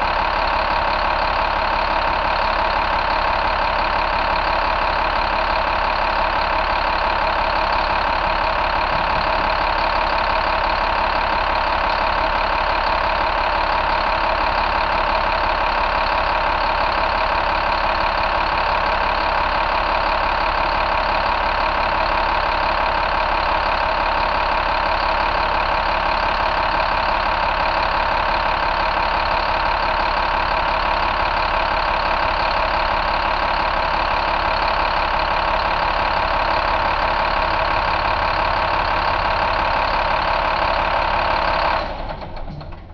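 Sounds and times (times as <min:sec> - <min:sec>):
diesel engine idling: 0:00.0 - 0:42.9.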